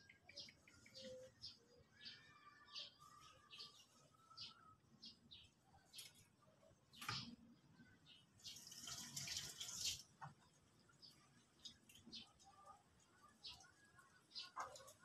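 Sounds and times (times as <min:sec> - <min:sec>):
faint bird chirps: 0:00.0 - 0:08.9.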